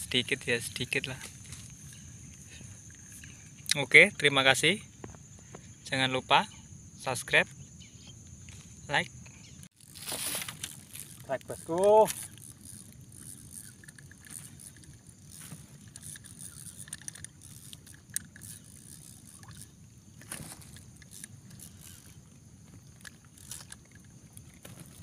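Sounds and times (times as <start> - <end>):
water sloshing and lapping: 9.8 - 25.0.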